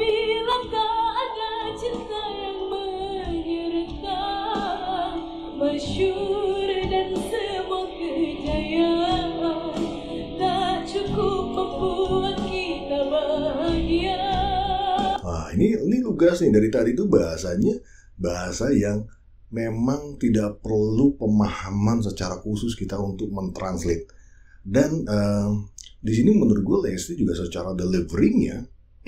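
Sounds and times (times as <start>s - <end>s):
woman singing into a microphone: 0.0s - 15.2s.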